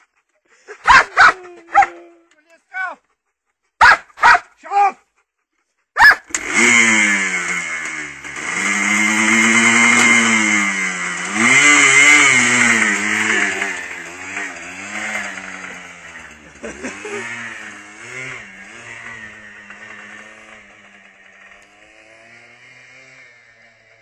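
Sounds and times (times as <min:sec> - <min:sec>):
quad bike engine revving: 0:06.0 - 0:24.0.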